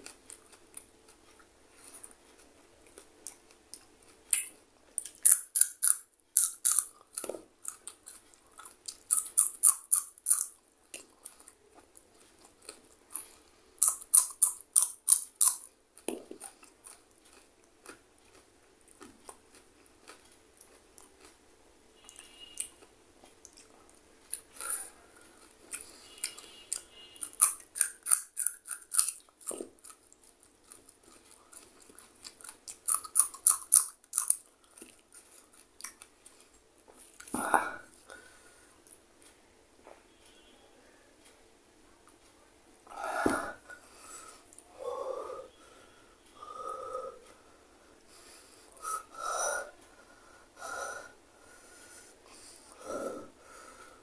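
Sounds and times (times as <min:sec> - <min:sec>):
wet chewing: 0:00.0 - 0:21.4, 0:22.0 - 0:38.0
crisp crunches of chilli bites: 0:04.3 - 0:08.1, 0:27.2 - 0:30.0.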